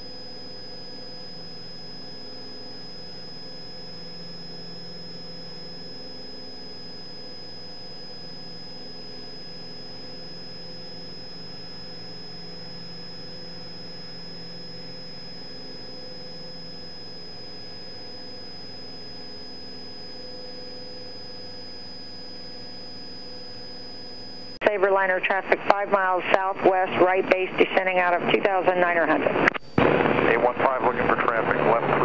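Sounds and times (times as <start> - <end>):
high-pitched whine: 0.0 - 32.0
airplane engine running: 25.0 - 32.0.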